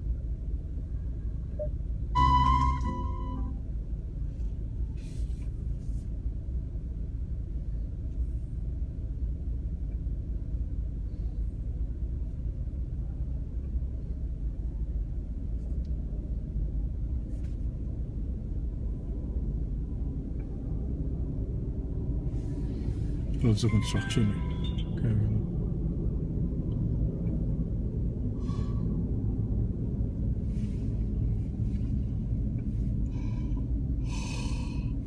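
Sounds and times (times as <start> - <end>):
car driving rumble: 0.0 - 35.0
brief pitched tone: 1.6 - 3.7, 23.6 - 25.3.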